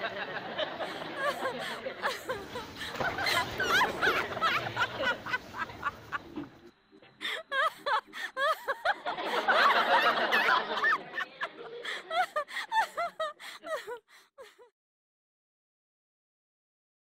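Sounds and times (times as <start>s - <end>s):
people laughing: 0.0s - 14.7s.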